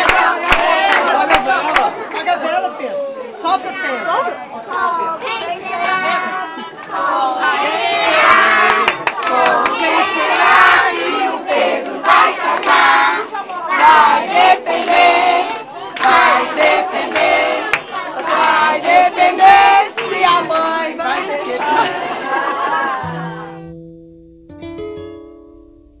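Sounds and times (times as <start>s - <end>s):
hand clapping: 0.0s - 1.9s, 8.4s - 10.1s, 12.0s - 20.6s
group singing and shouting: 0.0s - 2.4s, 4.3s - 23.7s.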